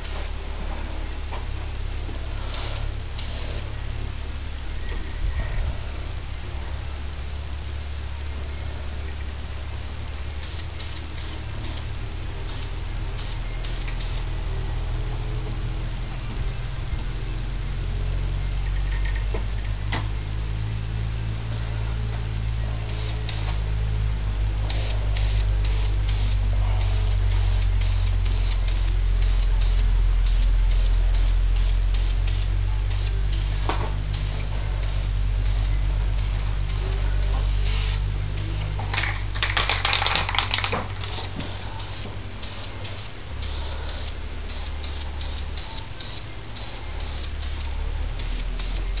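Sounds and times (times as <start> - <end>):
steady low hum: 0.0 - 49.0
aerosol spray can hissing: 2.5 - 3.7.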